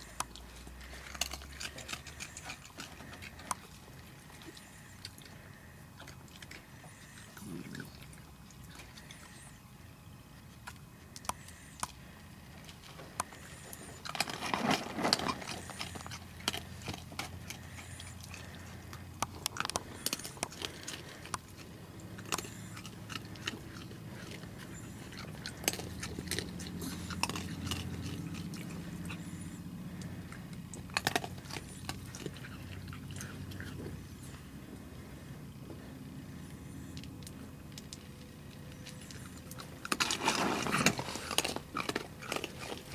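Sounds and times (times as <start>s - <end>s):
low steady hum: 0.0s - 42.9s
raccoons crunching food: 0.0s - 42.9s.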